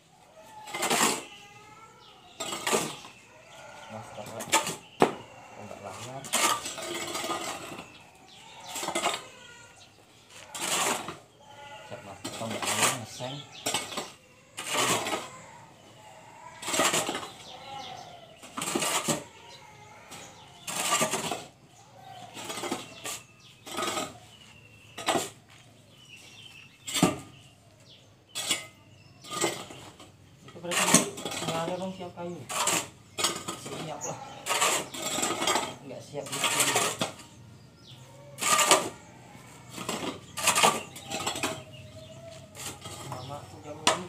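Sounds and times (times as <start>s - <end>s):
trowel scraping cement mortar: 0.4s - 1.7s, 2.3s - 9.7s, 10.3s - 15.6s, 16.5s - 25.5s, 28.3s - 44.0s.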